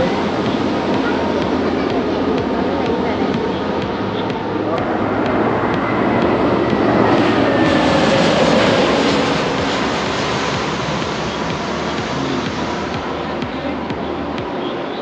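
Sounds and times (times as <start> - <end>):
engine whine falling in pitch: 0.0 - 15.0
jet engines rushing past: 0.0 - 15.0.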